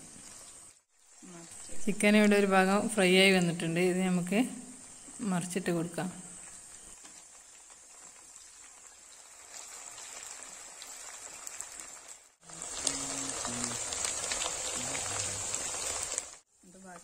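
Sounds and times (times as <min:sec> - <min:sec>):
chicken sizzling in oil: 0:00.0 - 0:03.1, 0:06.3 - 0:17.0
oil crackling and popping: 0:06.4 - 0:17.0.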